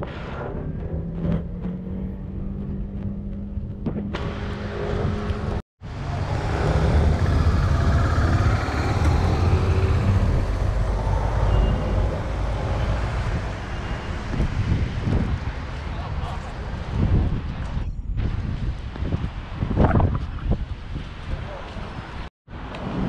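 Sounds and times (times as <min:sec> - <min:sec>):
road traffic: 0:00.4 - 0:17.8
large vehicle running close by: 0:04.4 - 0:14.6.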